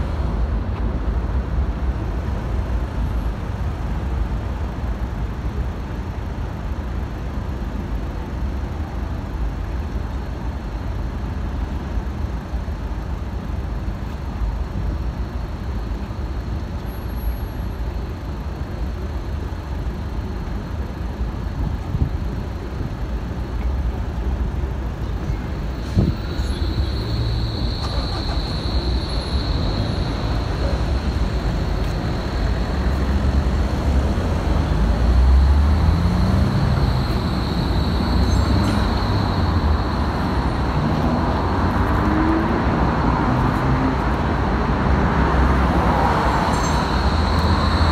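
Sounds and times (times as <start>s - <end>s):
street traffic rumble: 0.0s - 47.9s
tram moving: 0.0s - 47.9s
steady high tone: 26.0s - 33.9s.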